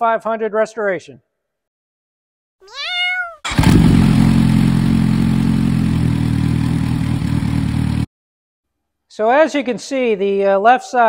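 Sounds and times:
motorcycle engine running: 3.5 - 8.1.

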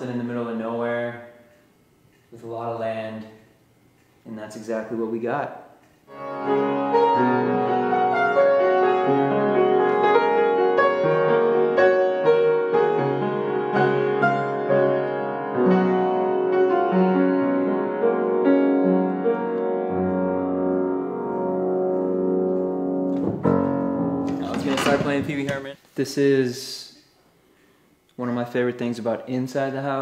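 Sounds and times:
upright piano chords: 6.1 - 25.7.

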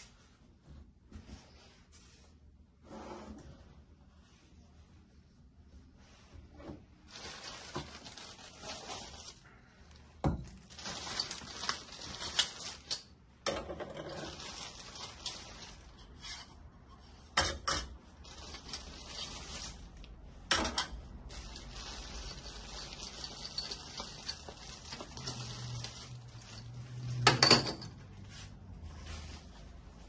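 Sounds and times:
packaging rustling: 7.1 - 9.5, 10.4 - 13.1, 14.1 - 16.0, 18.2 - 20.2, 21.1 - 27.2.

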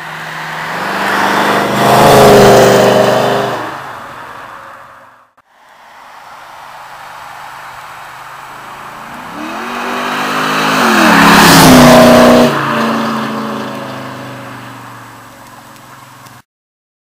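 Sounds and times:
car engine accelerating past: 0.1 - 3.8, 8.4 - 15.0.

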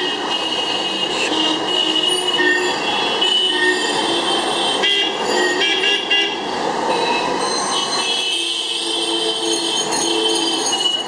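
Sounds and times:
traffic din: 0.0 - 11.0.

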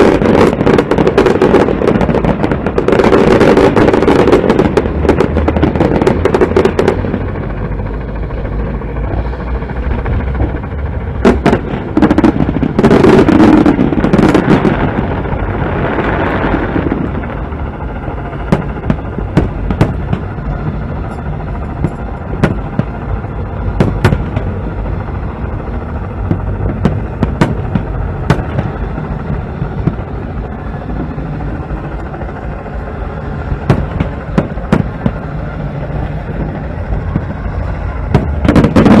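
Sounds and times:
fireworks bangs: 0.0 - 7.3, 11.2 - 17.2, 18.4 - 24.8, 25.7 - 31.4, 33.2 - 39.0
steady low rumble: 0.0 - 39.0.

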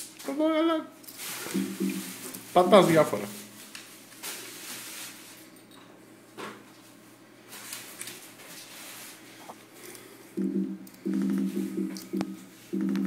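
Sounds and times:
loud low buzzing tone: 10.4 - 13.0.

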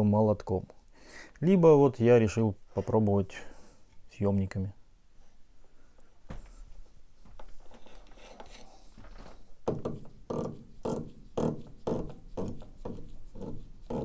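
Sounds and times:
screw rubbing sounds: 7.4 - 8.8, 9.7 - 14.0.

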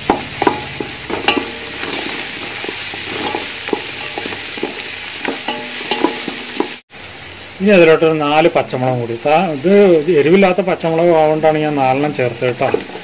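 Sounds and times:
wooden spatula scraping pot: 0.0 - 6.8, 12.0 - 13.0
food sizzling in hot oil: 0.0 - 13.0.

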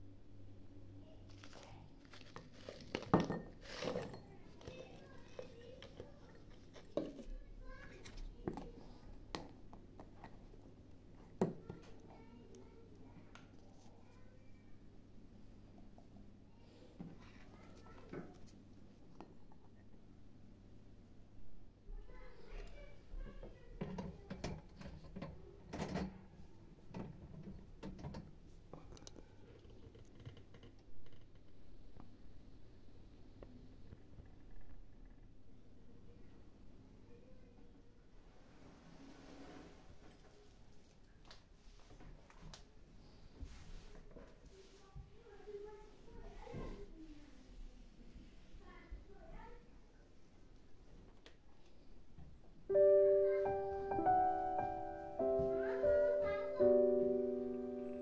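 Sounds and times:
glass jars clicking and knocking: 2.9 - 4.7.

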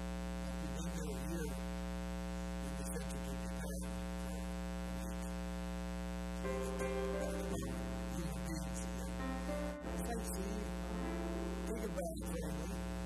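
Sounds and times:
electrical mains hum: 0.0 - 13.0
soft sustained musical tone: 6.4 - 12.8.

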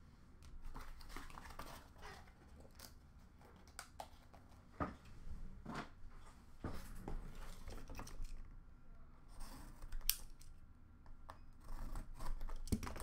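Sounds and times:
cards and packaging rustling: 0.6 - 4.7.

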